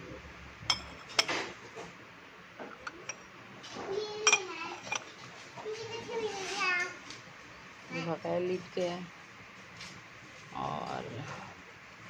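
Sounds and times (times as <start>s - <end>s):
glass lids clinking: 0.7s - 1.4s, 2.7s - 3.2s, 4.3s - 5.1s.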